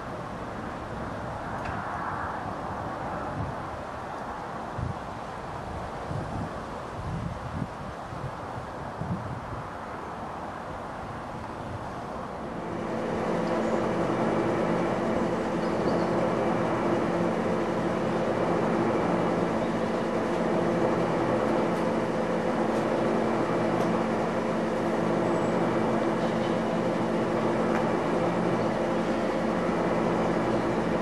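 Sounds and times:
steam locomotive rushing steam: 9.7s - 31.0s.

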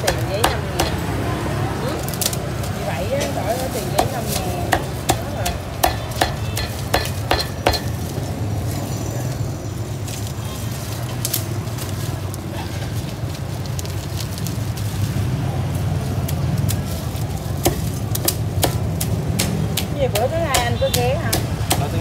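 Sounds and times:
cleaver chopping meat: 0.0s - 1.2s, 3.2s - 8.1s, 17.6s - 22.0s.

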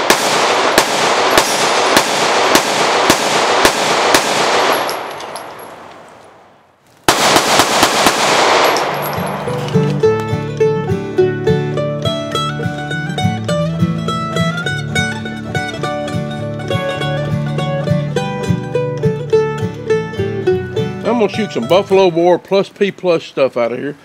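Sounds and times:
pistol shots echoing: 0.0s - 10.3s
plucked-string banjo music: 9.5s - 22.3s.

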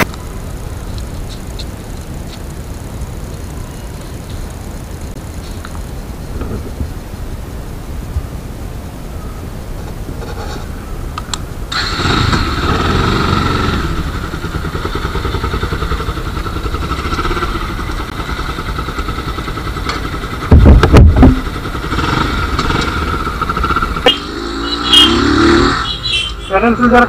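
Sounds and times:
motorcycle engine riding: 0.0s - 27.0s
low wind buffeting on microphone: 20.3s - 21.6s.

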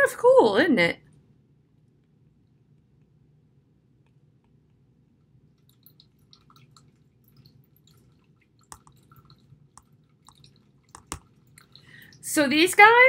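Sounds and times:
low room hum: 0.0s - 13.0s
stylus tapping on tablet screen: 9.8s - 11.3s.

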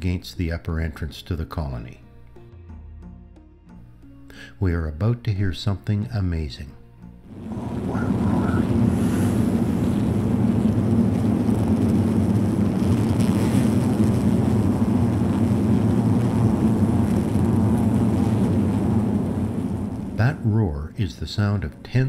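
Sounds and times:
bees humming low roar: 7.3s - 20.2s.

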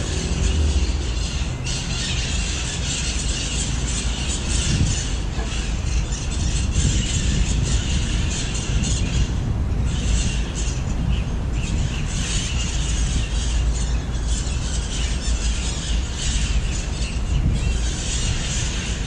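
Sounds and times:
parrots squawking and chattering: 0.0s - 19.0s.

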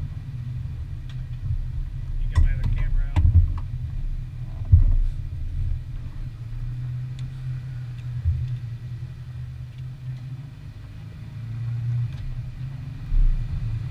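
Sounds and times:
atv engines idling: 0.0s - 11.1s.

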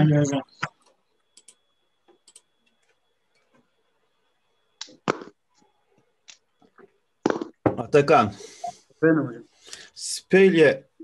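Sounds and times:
faint high whine: 0.0s - 11.0s
computer mouse clicks: 0.6s - 3.6s.

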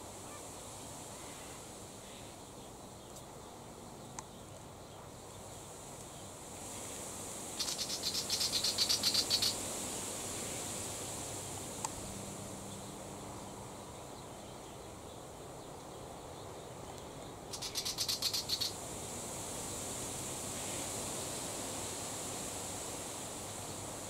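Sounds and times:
bird scolding chatter: 7.6s - 9.6s, 17.5s - 18.7s.

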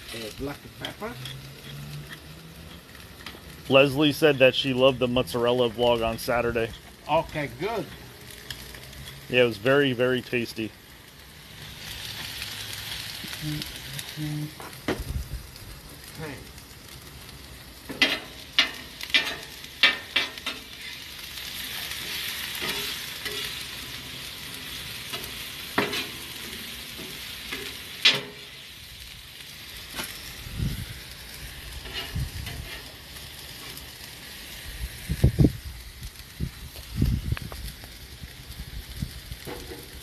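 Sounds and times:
metal spatula scraping griddle: 0.0s - 3.4s, 17.9s - 28.6s, 31.7s - 33.9s
food sizzling on griddle: 0.0s - 40.0s.

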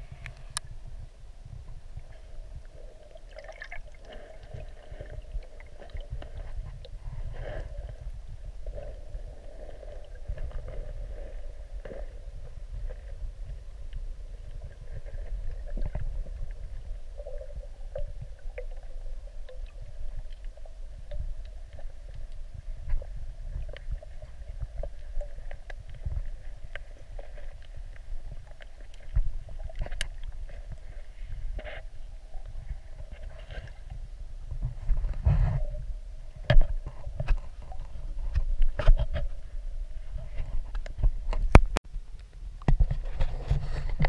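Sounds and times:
muffled underwater rumble: 0.0s - 44.0s
faint clicks and ticks: 9.6s - 31.0s.

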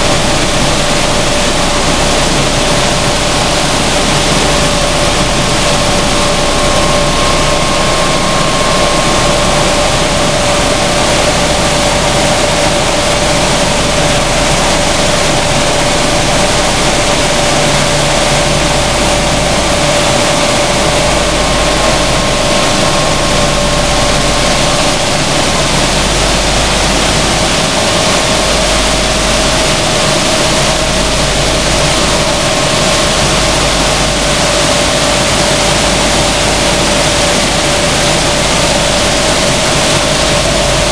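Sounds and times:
seed hulling machine running: 0.0s - 40.9s.

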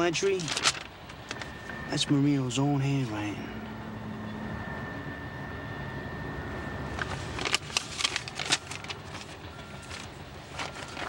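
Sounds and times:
paper rustling: 0.0s - 1.6s, 7.0s - 11.0s
faint high whine: 0.0s - 11.0s
low traffic rumble: 0.0s - 11.0s.

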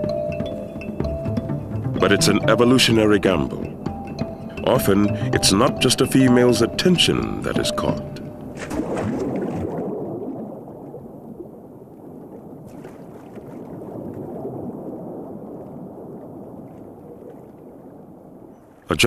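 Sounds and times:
water churning and bubbling: 0.0s - 19.0s
water splash: 4.6s - 18.9s.

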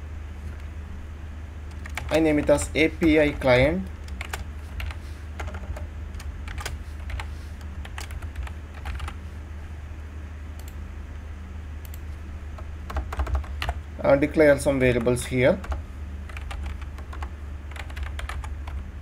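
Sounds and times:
steady low hum: 0.0s - 19.0s
keyboard typing clicks: 1.7s - 9.2s.

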